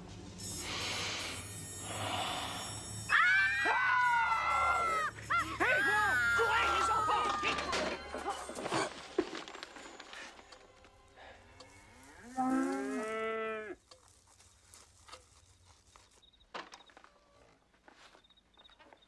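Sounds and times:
cow mooing: 0:11.6 - 0:13.8.

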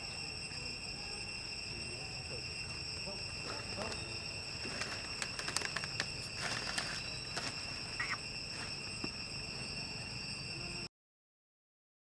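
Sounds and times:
insect drone: 0:00.0 - 0:10.9
dry leaves crackling: 0:03.5 - 0:08.8.

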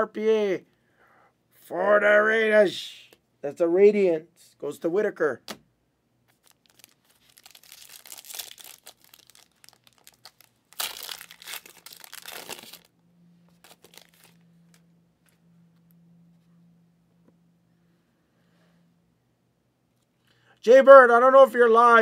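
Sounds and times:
foil wrapper crinkling and tearing: 0:06.3 - 0:12.9, 0:13.5 - 0:14.8.

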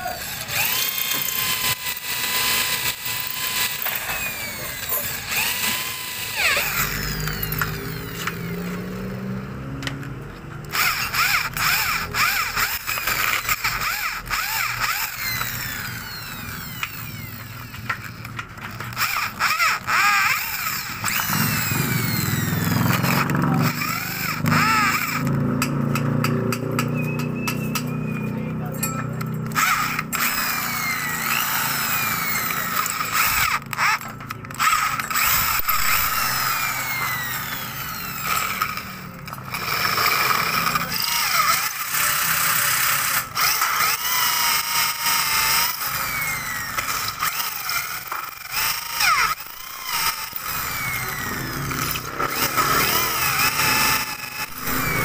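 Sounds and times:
drill bit squealing in metal: 0:00.0 - 0:08.6, 0:18.9 - 0:25.3, 0:26.9 - 0:55.0
electric drill boring metal: 0:00.0 - 0:09.7, 0:10.6 - 0:27.9, 0:28.8 - 0:55.0.

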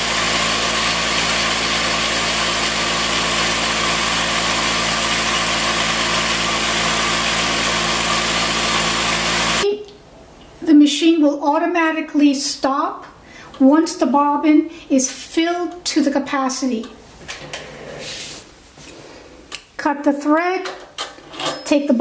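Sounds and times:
sewing machine motor humming: 0:00.0 - 0:09.6.

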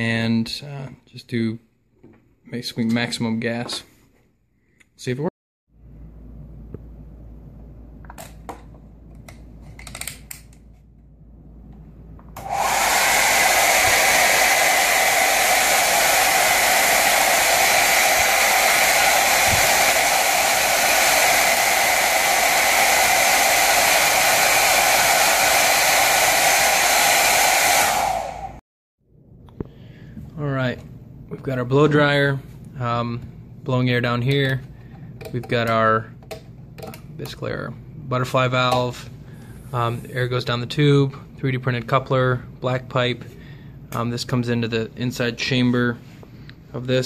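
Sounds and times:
hair dryer running: 0:12.4 - 0:28.6.

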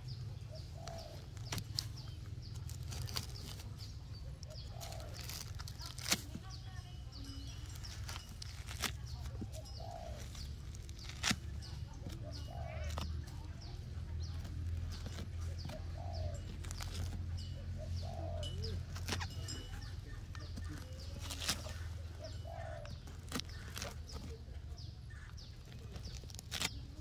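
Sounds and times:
low bird call: 0:00.0 - 0:13.9, 0:15.0 - 0:27.0
knife scraping palm fibre: 0:04.4 - 0:06.4, 0:07.7 - 0:13.2, 0:18.2 - 0:24.4, 0:25.1 - 0:27.0.

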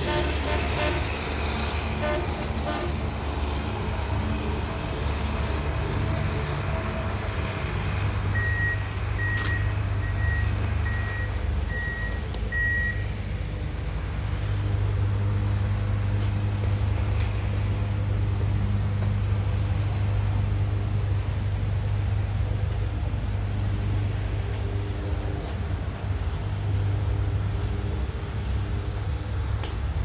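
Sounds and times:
diesel engines droning: 0:00.0 - 0:30.0
backup alarm beeping: 0:08.3 - 0:13.1.

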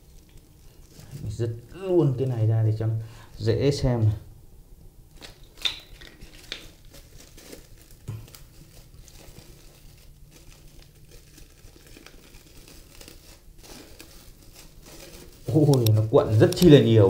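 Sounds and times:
foil and plastic film crinkling: 0:00.0 - 0:02.4, 0:05.1 - 0:17.0.

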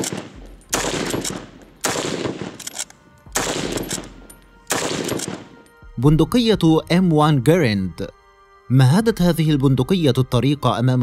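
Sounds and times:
rifle shots with echo: 0:00.0 - 0:05.6.

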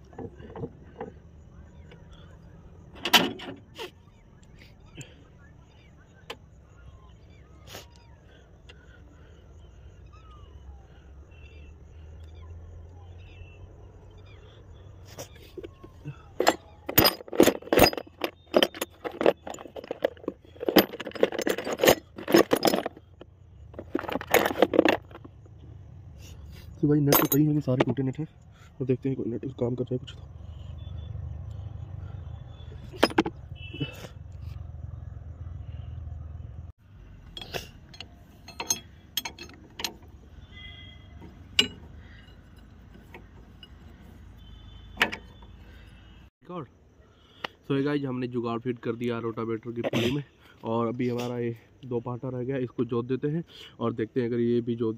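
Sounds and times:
metal tools clattering in toolbox: 0:15.5 - 0:25.4, 0:27.0 - 0:28.0, 0:32.8 - 0:34.1, 0:37.2 - 0:44.2, 0:44.8 - 0:45.4
spanner clinking on metal: 0:15.7 - 0:25.3, 0:27.0 - 0:28.1, 0:32.8 - 0:34.0, 0:37.2 - 0:44.2, 0:44.8 - 0:45.4.

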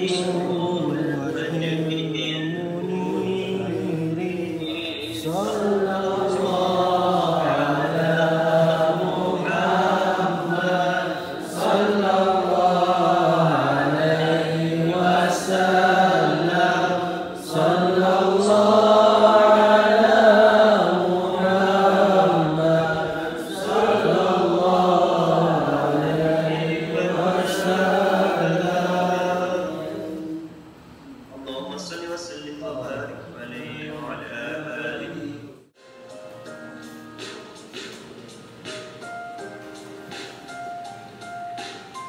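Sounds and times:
man chanting verses: 0:00.0 - 0:30.4, 0:31.4 - 0:35.6.

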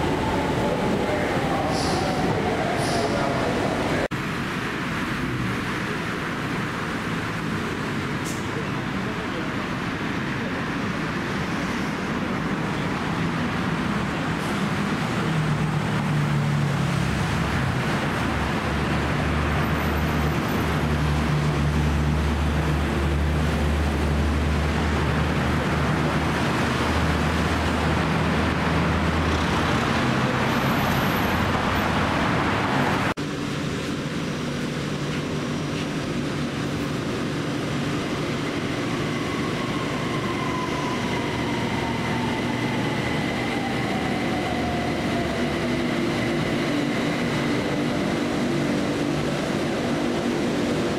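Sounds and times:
road traffic: 0:00.0 - 0:50.9
electric train whine: 0:33.3 - 0:50.9.

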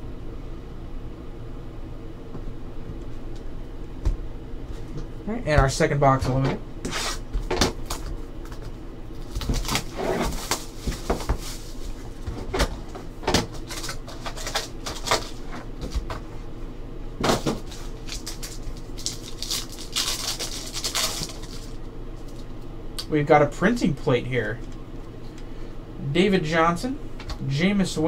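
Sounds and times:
foil wrappers crinkling: 0:07.8 - 0:12.7, 0:13.4 - 0:16.1, 0:17.3 - 0:22.6
hands handling cardboard box: 0:09.3 - 0:12.0.

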